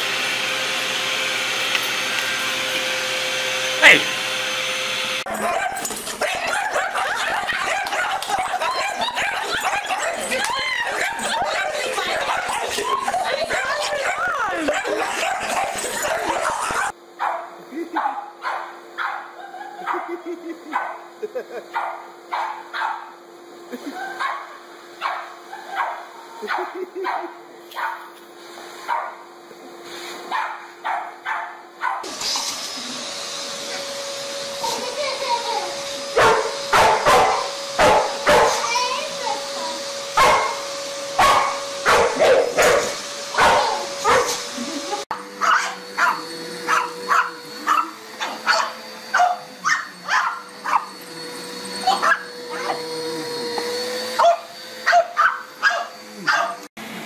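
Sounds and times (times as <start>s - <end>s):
vacuum cleaner running: 0.0s - 57.0s
dog barking: 5.3s - 21.0s, 21.7s - 23.1s, 24.1s - 28.1s, 28.9s - 29.2s, 30.3s - 32.1s, 36.2s - 38.7s, 40.2s - 40.6s, 41.2s - 44.4s, 45.4s - 50.9s, 51.9s - 52.8s, 54.2s - 56.7s.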